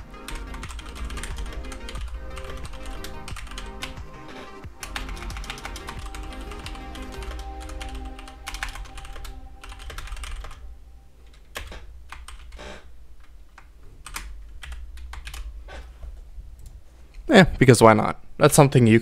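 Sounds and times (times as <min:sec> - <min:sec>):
typing on computer keyboard: 0:00.2 - 0:04.0, 0:04.8 - 0:10.6, 0:11.3 - 0:12.6, 0:13.2 - 0:15.5.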